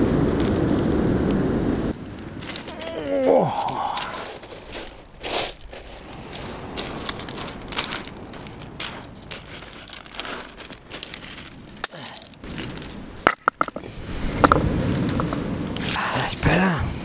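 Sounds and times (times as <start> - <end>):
pebbles crunching and clattering: 2.0 - 15.2.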